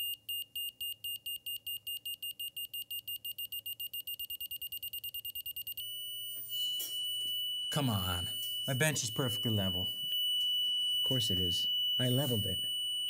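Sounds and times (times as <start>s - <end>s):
digital level beeping: 6.4s - 12.7s.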